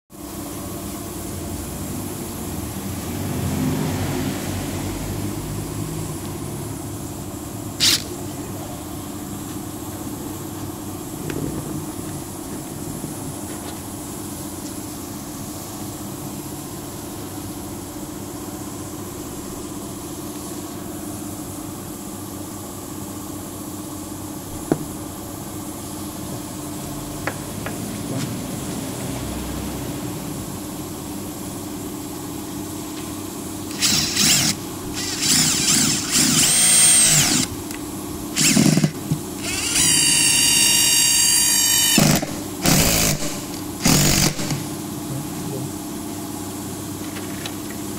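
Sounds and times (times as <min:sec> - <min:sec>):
impact driver whining: 0:07.8 - 0:08.2, 0:33.7 - 0:37.6, 0:38.4 - 0:44.7.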